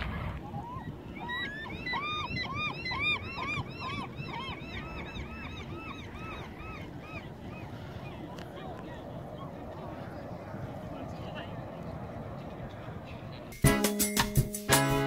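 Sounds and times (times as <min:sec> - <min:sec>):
gull yelping calls: 0:00.4 - 0:08.7.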